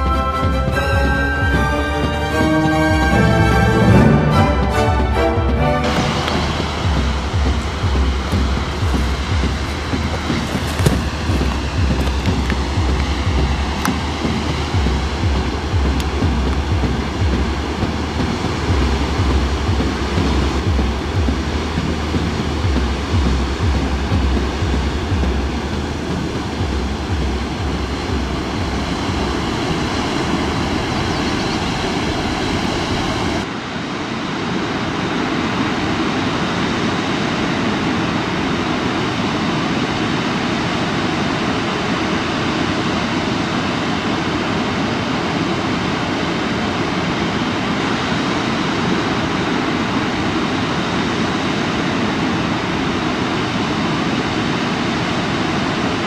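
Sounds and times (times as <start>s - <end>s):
low rumble: 0.0s - 33.5s
waterfall roaring: 0.0s - 56.0s.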